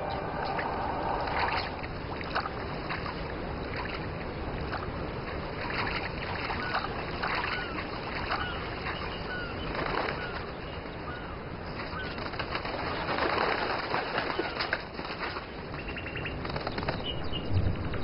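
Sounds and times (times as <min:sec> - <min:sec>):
steady rushing background: 0:00.0 - 0:03.8
waterbirds calling and chirping: 0:00.0 - 0:18.0.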